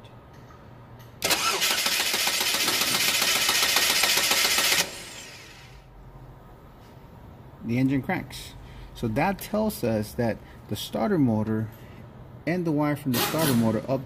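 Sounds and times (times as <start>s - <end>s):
starter motor cranking engine: 1.2s - 5.8s.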